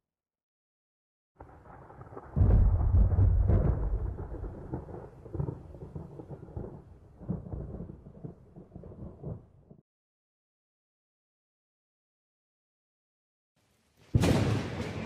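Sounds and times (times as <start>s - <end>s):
thunder clap and rumble: 1.4s - 9.8s.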